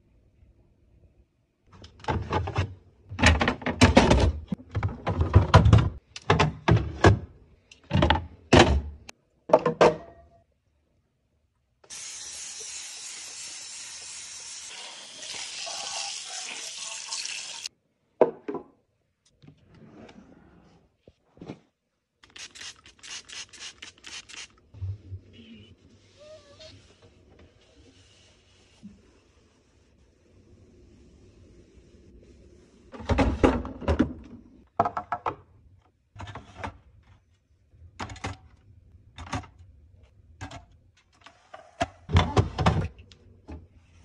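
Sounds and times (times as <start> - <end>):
plastic bins clattering: 1.8 - 10.0
tap running water: 11.9 - 17.7.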